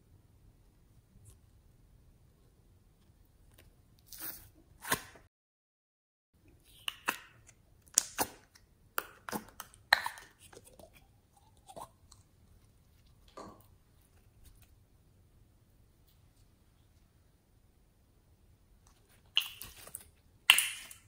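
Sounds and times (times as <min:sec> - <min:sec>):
slime popping and squishing: 0:19.3 - 0:21.0.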